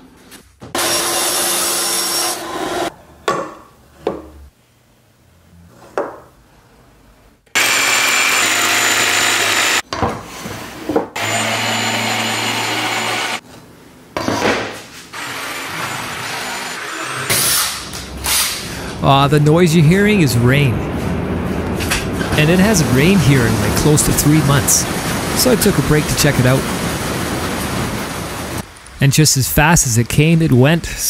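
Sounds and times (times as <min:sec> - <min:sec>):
drill boring into wood: 0:00.8 - 0:02.9, 0:07.6 - 0:09.8, 0:11.2 - 0:13.4.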